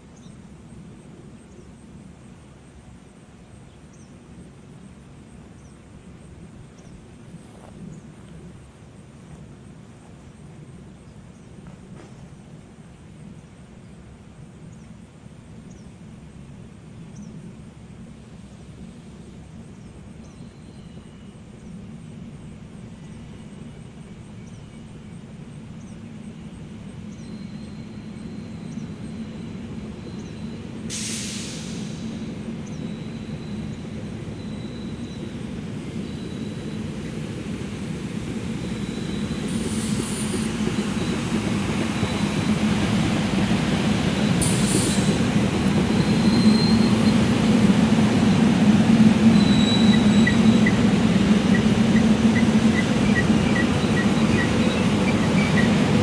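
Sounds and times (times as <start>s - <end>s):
train rumble passing: 0.0s - 56.0s
short hiss: 30.9s - 32.2s, 39.5s - 40.6s, 44.4s - 45.2s.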